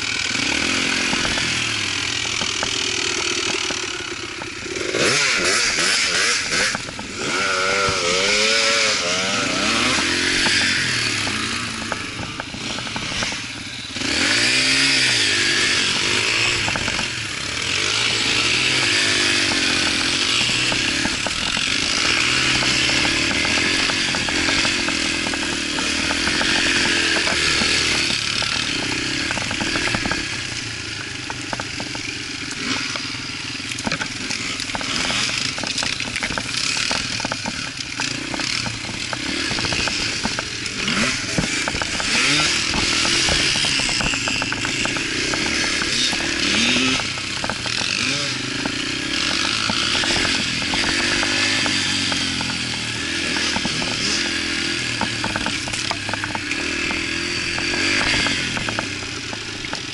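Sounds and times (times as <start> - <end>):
dirt bike engine revving: 0.0 - 59.9
rattles and knocks: 16.3 - 59.9.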